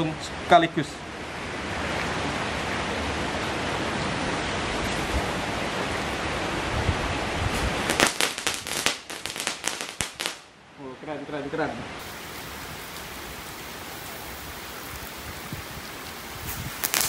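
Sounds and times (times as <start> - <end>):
heavy rain on wet pavement: 1.8 - 10.4, 11.9 - 17.0
firecrackers cracking: 7.6 - 10.5, 12.0 - 17.0.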